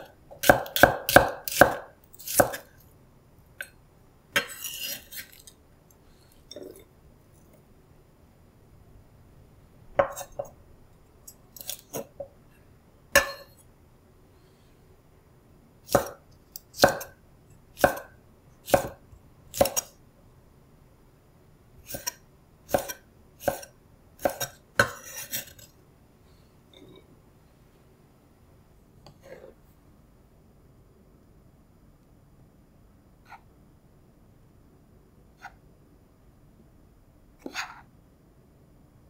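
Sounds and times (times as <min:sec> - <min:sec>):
knife scraping board: 0:04.4 - 0:05.5, 0:21.9 - 0:25.7, 0:29.2 - 0:29.6, 0:37.4 - 0:37.9.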